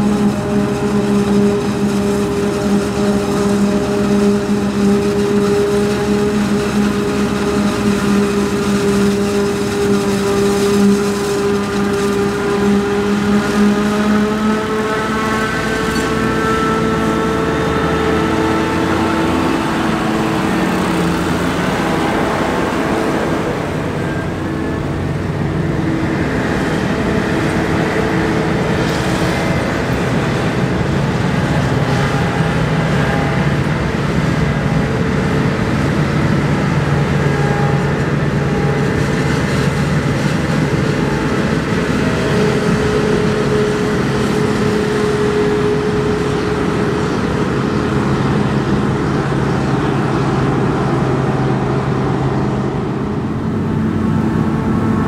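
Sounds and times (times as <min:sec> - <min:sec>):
deeper engine: 0:00.0 - 0:55.0
diesel engines running: 0:00.0 - 0:55.0.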